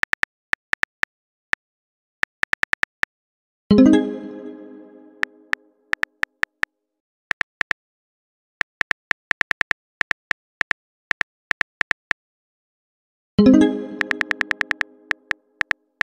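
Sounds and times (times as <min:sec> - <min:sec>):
message chime: 0:03.7 - 0:05.5, 0:13.4 - 0:15.2
phone keyboard typing clicks: 0:08.7 - 0:12.2, 0:14.0 - 0:15.8.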